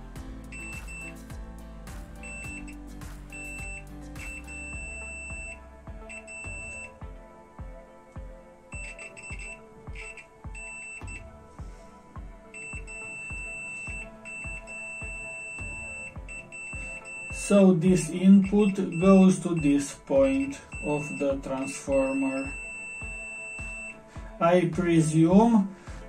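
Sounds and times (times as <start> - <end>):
background music with beat: 0.0 - 26.0
multimeter beeping: 0.5 - 1.3, 2.2 - 7.0, 8.8 - 11.3, 12.5 - 24.0.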